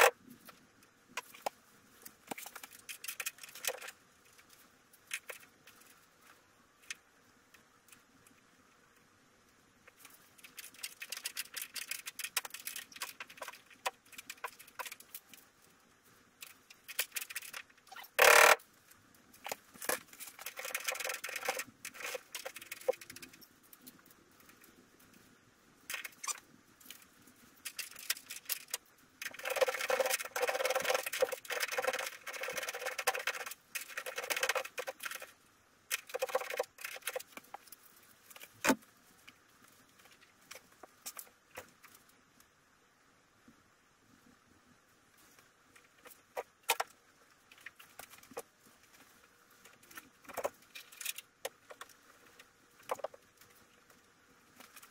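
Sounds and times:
hand tools clicking and rattling: 10.4 - 15.4, 16.4 - 18.6, 19.4 - 24.0, 27.6 - 38.5.

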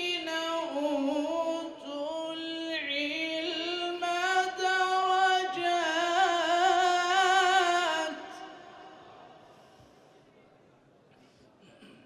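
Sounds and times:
man reciting in melodic chant: 0.0 - 9.0.

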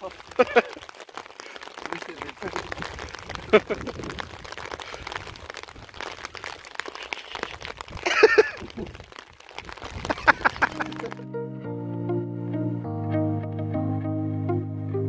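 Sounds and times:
rain pattering: 0.0 - 11.3.

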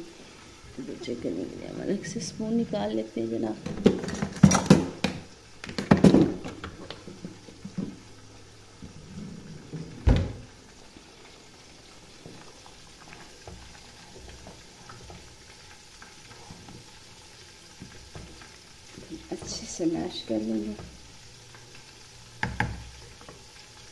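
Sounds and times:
drawer pushed shut: 9.8 - 10.5.

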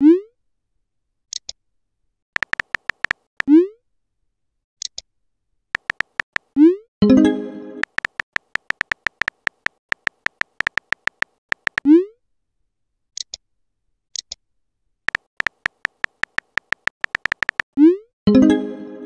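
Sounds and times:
phone keyboard clicks: 2.4 - 3.5, 5.8 - 6.5, 7.8 - 11.8, 15.1 - 17.7.

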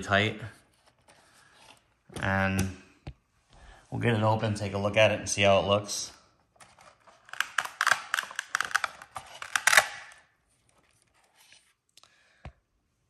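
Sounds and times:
plastic clicks and rattles: 6.7 - 10.2.

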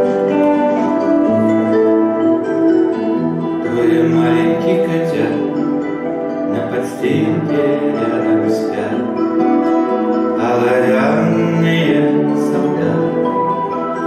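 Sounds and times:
classical guitar plucked: 0.0 - 14.0
man singing: 3.4 - 9.5, 10.2 - 14.0.

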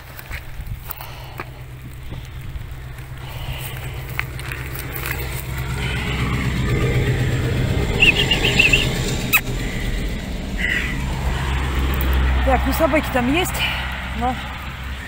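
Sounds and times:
highway traffic rumble: 0.0 - 15.0
high chirps: 5.5 - 11.2.

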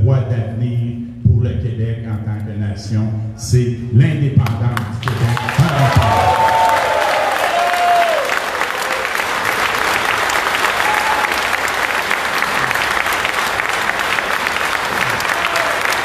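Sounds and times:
audience applauding: 5.0 - 16.0.

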